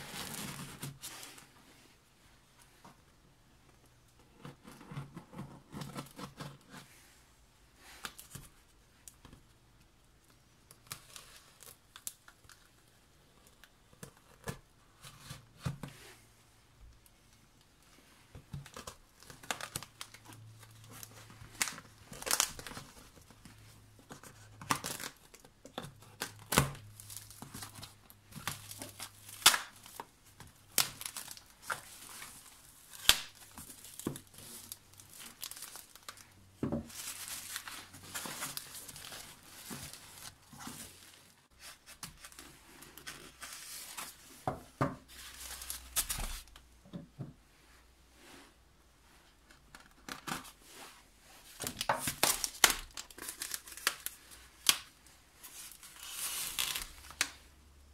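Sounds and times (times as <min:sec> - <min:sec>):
bubble wrap crinkling: 0:00.0 - 0:01.6, 0:10.2 - 0:14.6, 0:18.4 - 0:44.4, 0:45.0 - 0:46.7, 0:49.7 - 0:57.5
tape and plastic ripping: 0:18.6 - 0:23.2, 0:24.1 - 0:36.3, 0:51.6 - 0:57.5.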